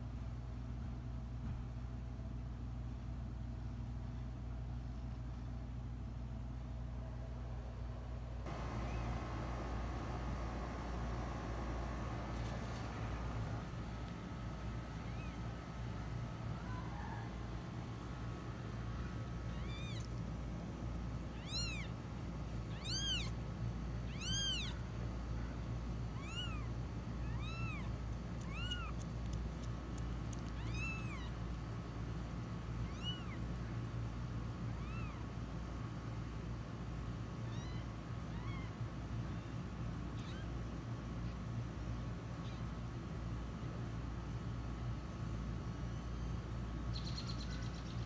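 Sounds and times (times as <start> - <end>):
steady low hum: 0.0 - 48.0
kitten mewing: 15.0 - 15.4, 19.4 - 20.2, 21.3 - 22.0, 22.6 - 23.4, 24.1 - 24.8, 26.1 - 29.3, 30.3 - 31.4, 32.8 - 33.5, 34.7 - 35.3, 37.4 - 39.5, 40.2 - 40.5.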